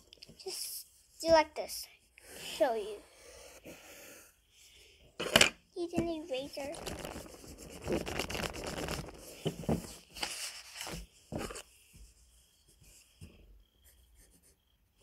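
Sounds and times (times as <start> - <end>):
eraser rubbing on paper: 6.3 - 9.4.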